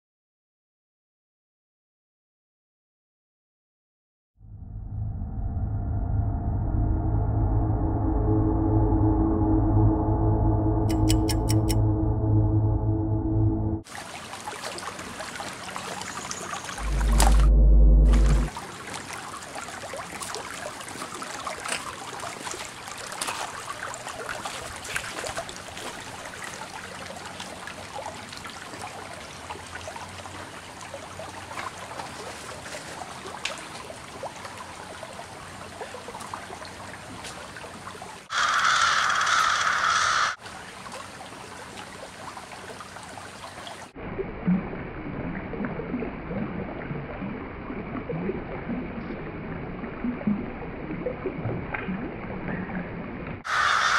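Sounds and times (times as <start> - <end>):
water trickling over rocks: 13.9 - 17.2, 18.5 - 38.1
loud harsh sound: 16.8 - 18.5.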